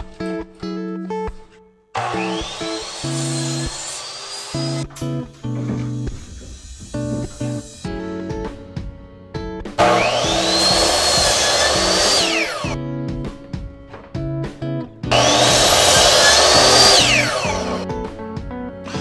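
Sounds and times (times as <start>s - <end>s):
miter saw cutting wood: 2.0s - 4.9s, 9.8s - 12.8s, 15.1s - 17.8s.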